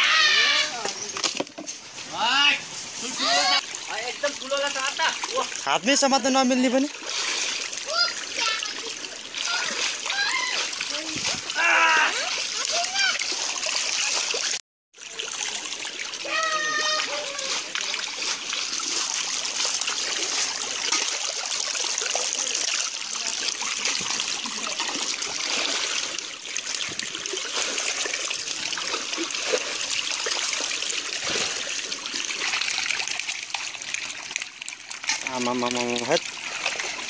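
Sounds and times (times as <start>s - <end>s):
fish splashing in shallow water: 6.6s - 37.0s.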